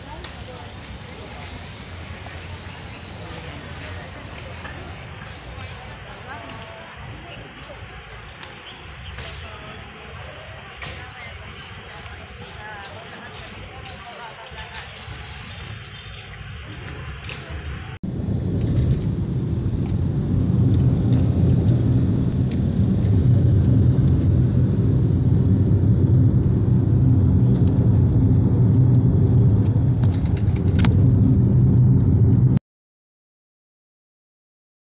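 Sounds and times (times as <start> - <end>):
car cabin low rumble: 17.0 - 32.6.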